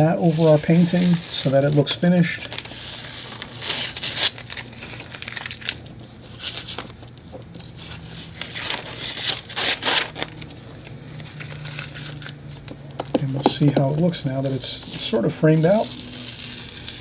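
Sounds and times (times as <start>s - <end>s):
tape ripping off paper: 0.0s - 7.0s, 7.8s - 10.5s, 13.6s - 17.0s.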